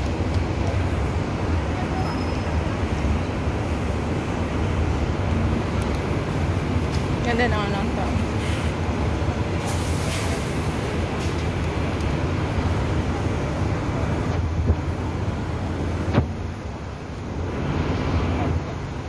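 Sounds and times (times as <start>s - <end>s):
rumble of passing traffic: 0.0s - 19.0s
short hiss: 9.6s - 10.8s.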